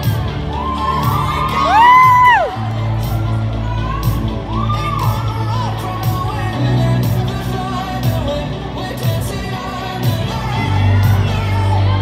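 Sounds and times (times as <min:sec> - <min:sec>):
person singing: 0:00.0 - 0:12.0
steady beat: 0:00.0 - 0:12.0
sustained bass line: 0:00.0 - 0:12.0.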